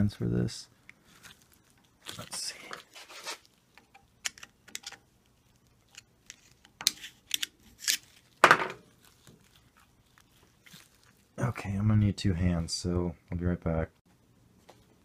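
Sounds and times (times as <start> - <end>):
steel parts clicking and clinking: 3.8 - 5.1.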